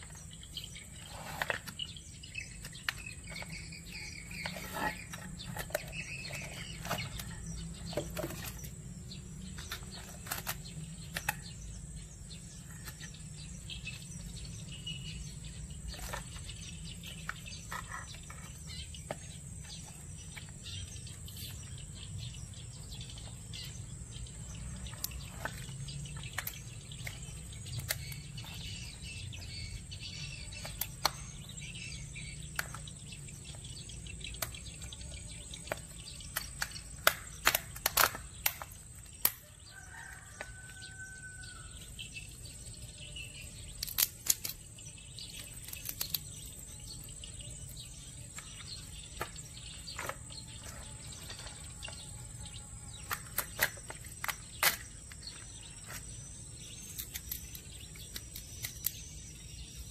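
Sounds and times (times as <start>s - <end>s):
knife cracking crab shell: 36.4s - 39.4s, 43.8s - 44.6s, 45.6s - 46.2s, 53.0s - 54.9s.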